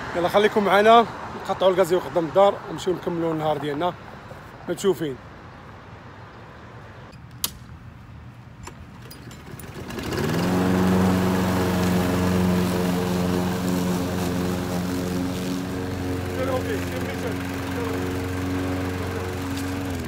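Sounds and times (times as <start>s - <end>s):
lawn mower engine running: 8.8s - 20.0s.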